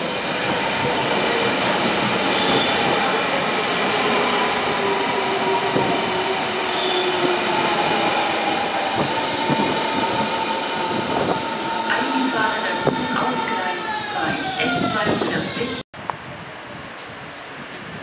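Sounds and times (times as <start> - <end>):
electric train whine: 0.0 - 15.8.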